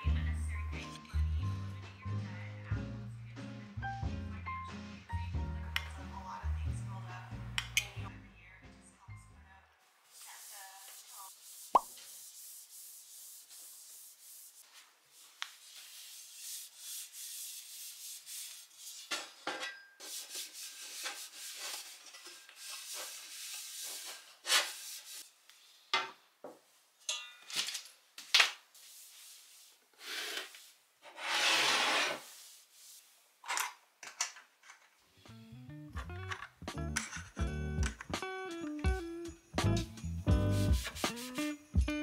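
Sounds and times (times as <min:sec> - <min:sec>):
cloth rubbing on wooden desk: 0:10.1 - 0:19.0, 0:30.6 - 0:33.1.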